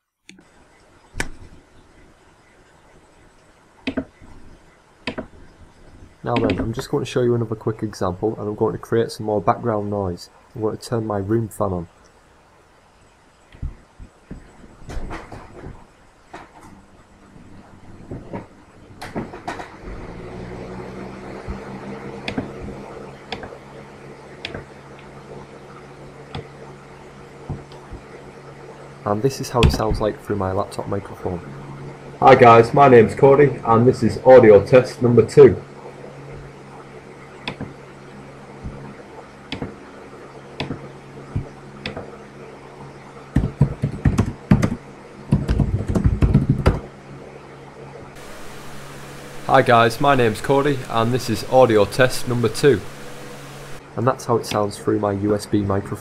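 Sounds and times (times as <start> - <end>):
microphone hiss: 0.0 - 56.0
room fan humming: 0.3 - 56.0
typing on keyboard: 45.4 - 46.8.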